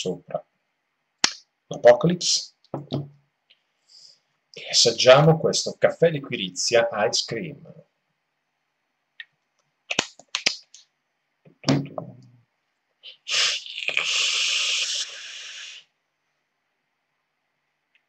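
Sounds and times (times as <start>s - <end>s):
hiss of air through vape: 13.1s - 15.9s.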